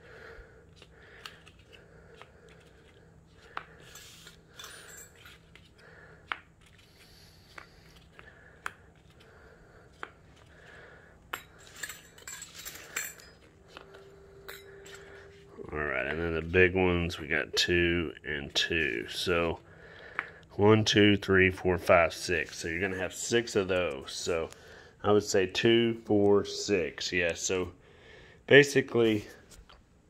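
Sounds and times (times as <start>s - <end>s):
metal hardware clinking: 3.8s - 5.4s, 11.3s - 15.4s.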